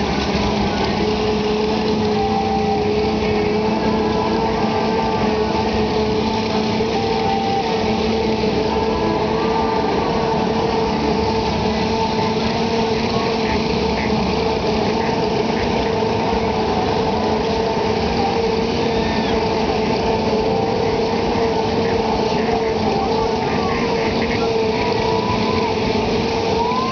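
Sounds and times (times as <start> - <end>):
faint crowd voices: 0.0 - 26.9
fairground machinery engine drone: 0.0 - 26.9.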